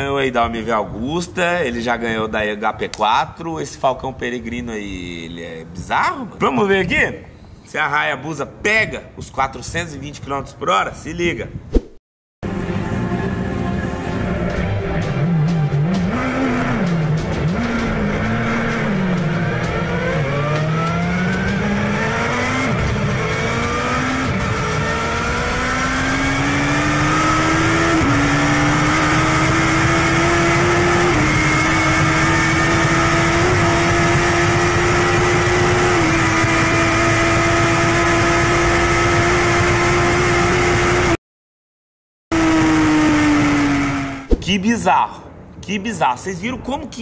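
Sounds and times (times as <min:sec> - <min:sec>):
motorcycle engine revving: 0:12.5 - 0:41.2, 0:42.3 - 0:44.4.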